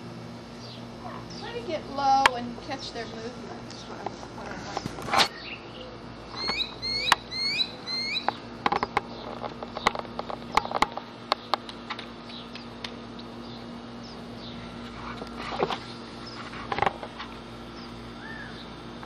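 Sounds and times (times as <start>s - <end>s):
puppy squeaking: 6.4s - 8.3s.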